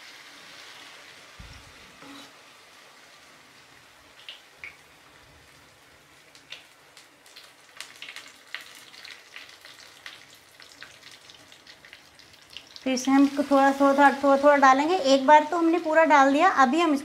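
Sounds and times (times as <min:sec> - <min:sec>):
batter sizzling in hot ghee: 0:00.0 - 0:17.0
oil crackles and pops: 0:04.1 - 0:13.6.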